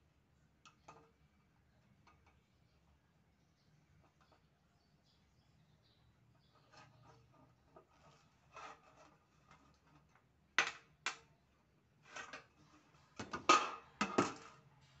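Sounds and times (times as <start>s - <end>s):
soft rubbing of metal: 6.2s - 10.2s, 12.0s - 13.2s.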